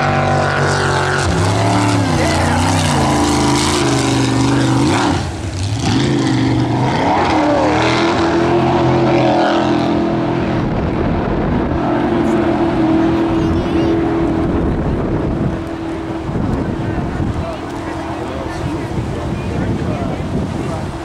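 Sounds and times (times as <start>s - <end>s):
jet boat engine running hard: 0.0s - 21.0s.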